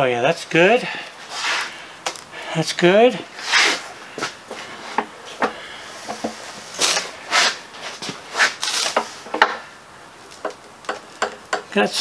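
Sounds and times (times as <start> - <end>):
brief scraping rubs: 1.3 - 1.8, 3.4 - 5.0, 6.1 - 9.2.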